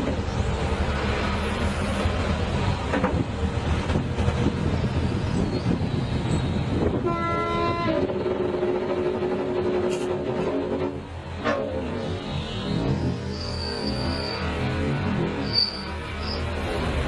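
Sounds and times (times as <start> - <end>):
horn-like tone: 7.0 - 8.1.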